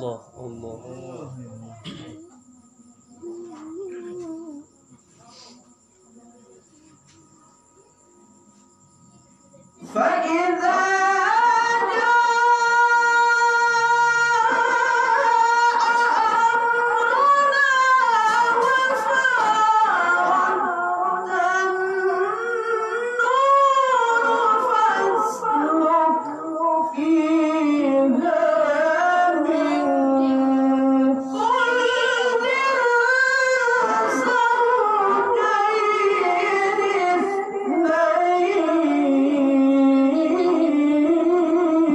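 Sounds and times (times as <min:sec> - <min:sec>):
man chanting into a microphone: 0:09.8 - 0:41.9.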